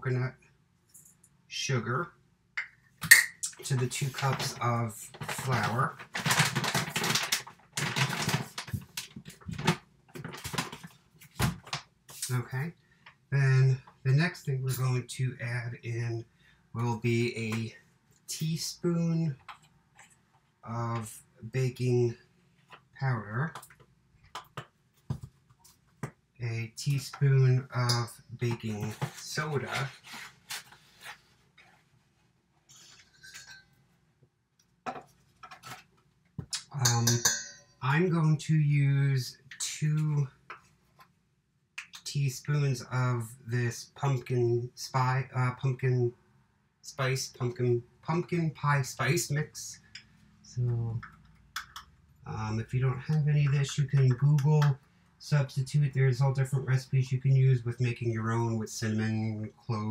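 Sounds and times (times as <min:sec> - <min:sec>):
plastic bag crinkling: 0:05.2 - 0:10.9.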